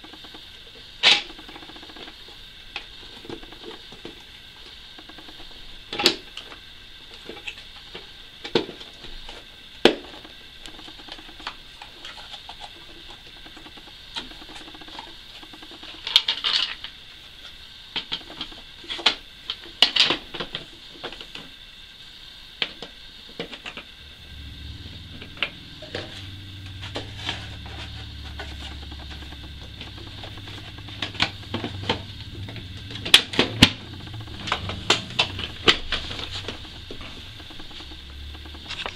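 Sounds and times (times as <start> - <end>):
low steady hum: 23.9 - 38.9.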